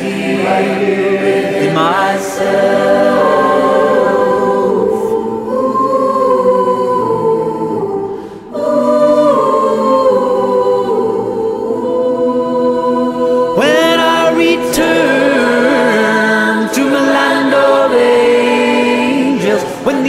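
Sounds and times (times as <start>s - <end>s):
choir singing a cappella: 0.0s - 20.0s.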